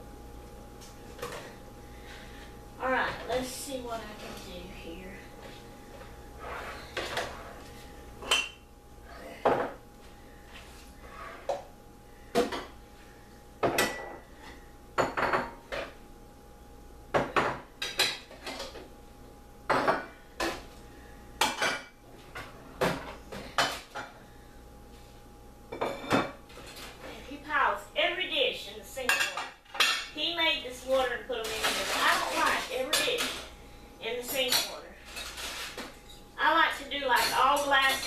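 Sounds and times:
faint steady hum: 0.0s - 38.0s
dishes and cutlery clinking: 8.2s - 8.6s, 13.6s - 14.2s, 25.8s - 27.0s, 29.0s - 30.2s, 34.2s - 36.3s, 37.1s - 38.0s.

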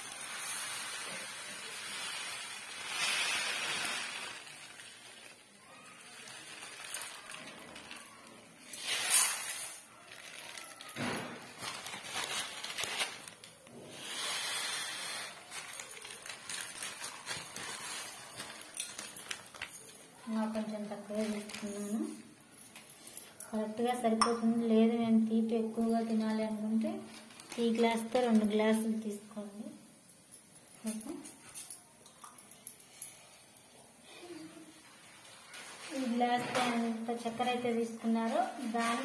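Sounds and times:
sugar pouring into metal pot: 0.0s - 11.0s, 13.9s - 23.3s.

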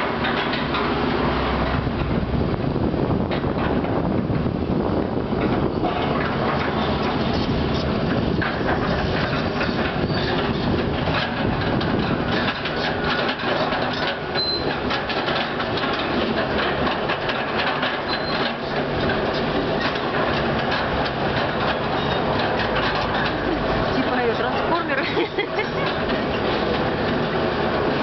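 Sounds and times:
diesel engine noise: 0.0s - 28.0s
brief high squeaks: 14.4s - 14.7s.

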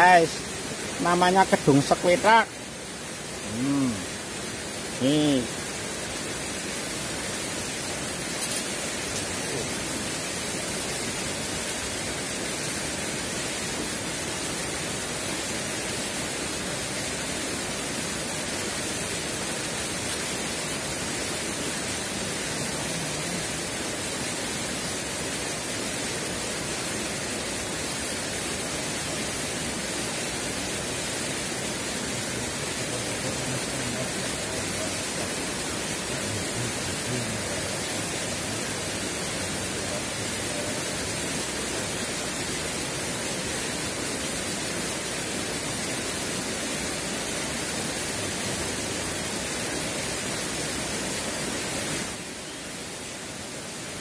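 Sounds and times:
river water rushing: 0.0s - 54.0s.

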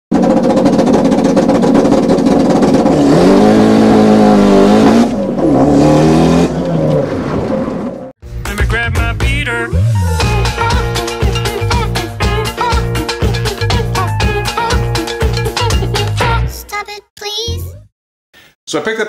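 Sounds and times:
racing car engine at high revs: 0.1s - 8.1s.

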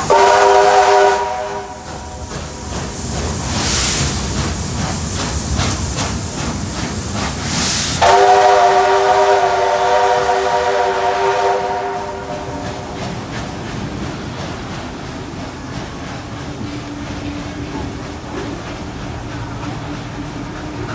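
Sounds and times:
steam hiss: 0.0s - 20.9s
steam locomotive exhaust beats: 0.0s - 20.9s
steam whistle chord: 0.1s - 1.9s, 8.0s - 12.6s.

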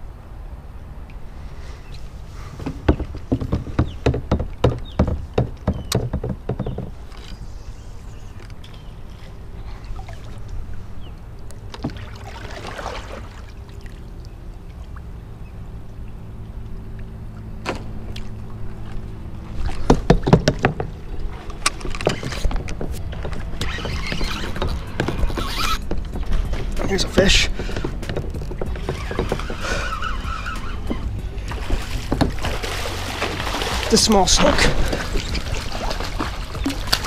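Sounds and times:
low hum: 7.0s - 37.0s.

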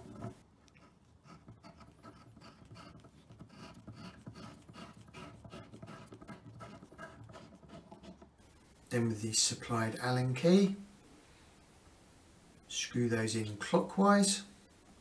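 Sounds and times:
screw scratching into board: 0.0s - 8.4s.

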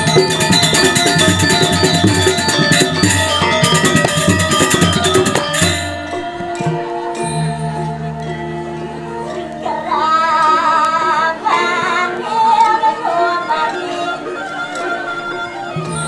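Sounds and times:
gamelan metallophones and drums: 0.0s - 16.0s.

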